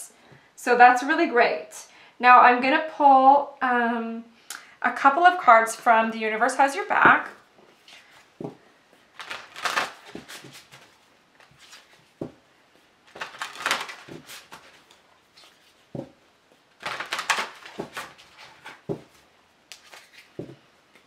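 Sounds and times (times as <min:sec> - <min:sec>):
cards shuffling: 0:09.1 - 0:12.2, 0:13.1 - 0:16.1, 0:16.8 - 0:21.0.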